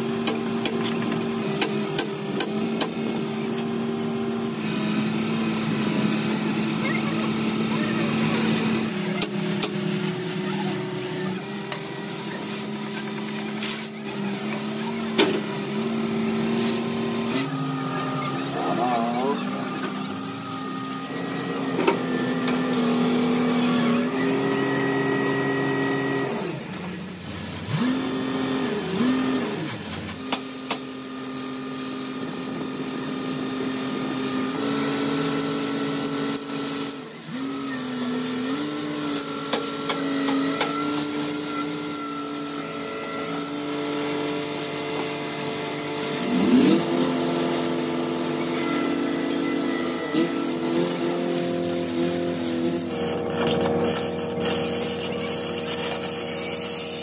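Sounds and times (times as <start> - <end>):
engine drone: 0.0 - 57.0
cutting torch hissing: 16.5 - 57.0.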